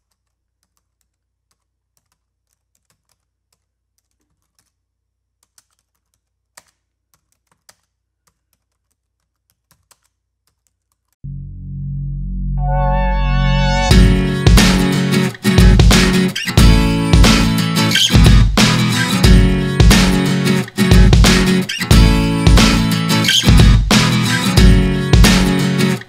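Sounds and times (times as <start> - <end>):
computer keyboard typing: 0.0 - 4.8, 5.4 - 11.2
loud music: 11.3 - 26.0.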